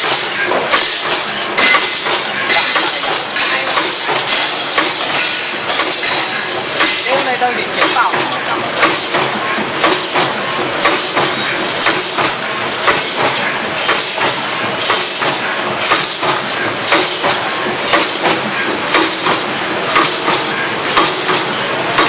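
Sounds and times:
machine mechanical clatter: 0.0 - 22.0.

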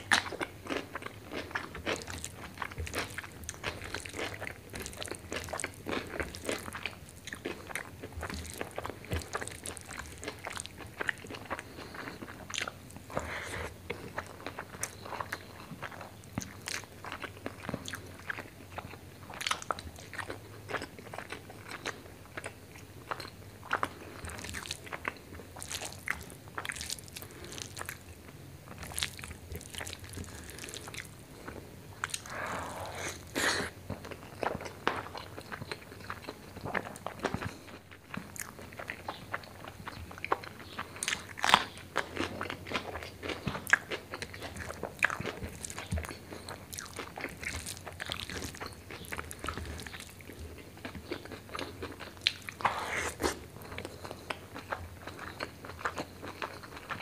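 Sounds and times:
chewing: 0.0 - 57.0.

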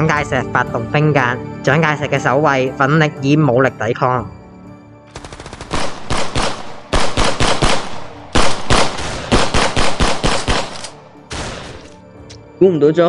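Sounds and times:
automatic gunfire bursts: 5.1 - 11.9.

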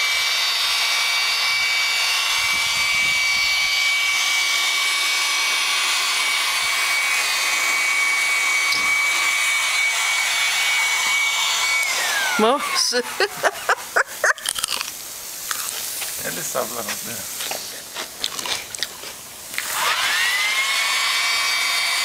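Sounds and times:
electric blower whining: 0.0 - 14.4, 18.3 - 22.0.

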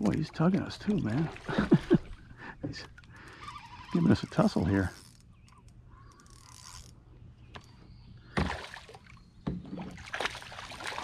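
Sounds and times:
faint clicks: 4.9 - 7.8
fish splashing at water surface: 8.4 - 11.0.

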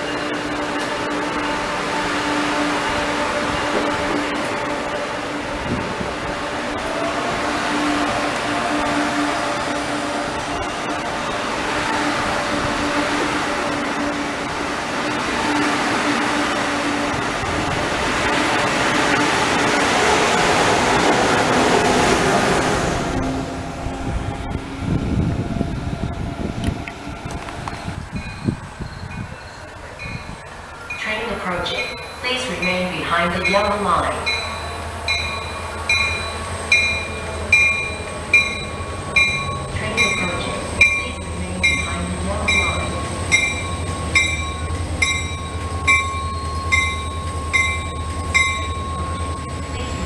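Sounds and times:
train rushing past: 0.0 - 50.0
locomotive bell ringing: 28.1 - 50.0.

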